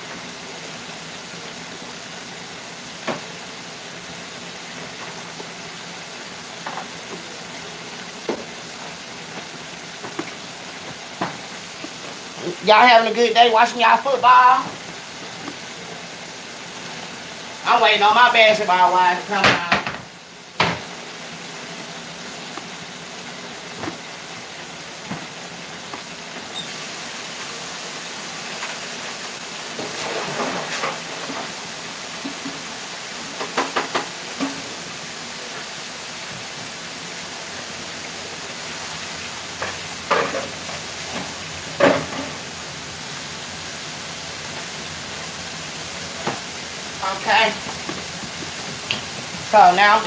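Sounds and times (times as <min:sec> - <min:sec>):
ribs sizzling in hot oil: 0:00.0 - 0:50.0
kitchenware clattering: 0:39.6 - 0:40.6.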